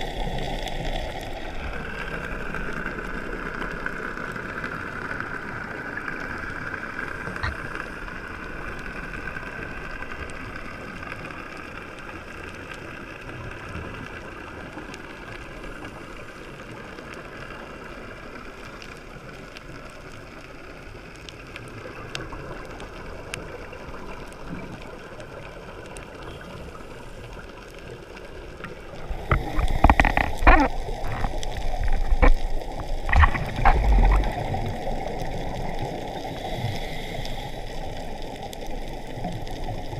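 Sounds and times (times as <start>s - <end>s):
gurgling exhaled bubbles: 0.0s - 10.0s, 21.7s - 39.9s
underwater hum: 0.0s - 39.9s.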